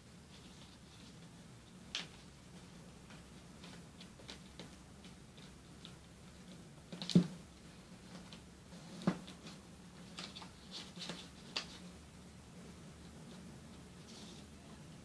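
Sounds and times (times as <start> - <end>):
paper folding crackles: 8.0 - 12.0.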